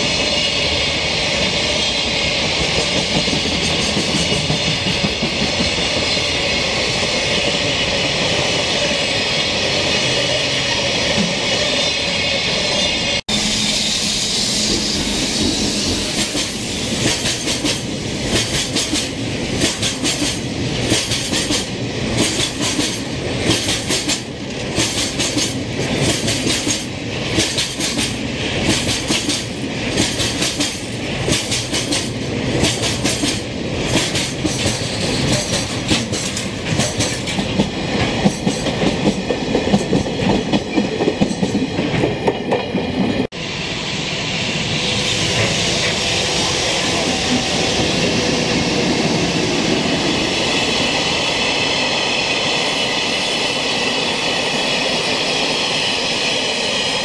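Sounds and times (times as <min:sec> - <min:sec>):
freight train rolling rumble: 0:00.0 - 0:57.0
train wheels clacking over rail joints: 0:02.4 - 0:06.4, 0:15.4 - 0:43.2.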